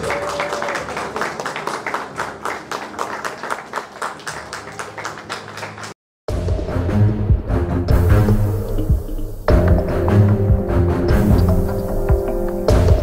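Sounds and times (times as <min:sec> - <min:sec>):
crowd applauding: 0:00.0 - 0:06.0.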